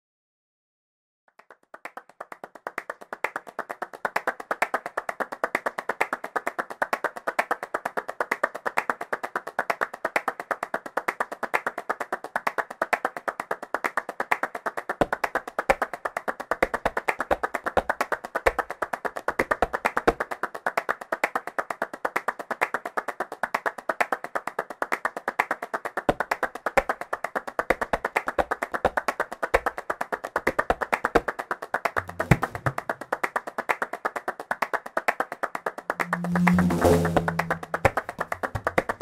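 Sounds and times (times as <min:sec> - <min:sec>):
people clapping fast rhythm: 0:01.3 - 0:36.0, 0:37.8 - 0:39.0
low drum bass strokes: 0:32.0 - 0:32.9, 0:35.9 - 0:39.0.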